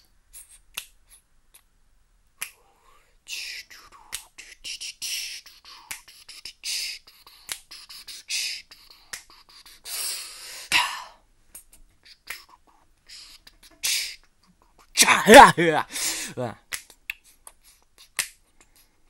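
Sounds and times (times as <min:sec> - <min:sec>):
hissing blows through lips: 0:02.5 - 0:10.8, 0:12.0 - 0:14.3
mouth clicks and pops: 0:03.3 - 0:09.5.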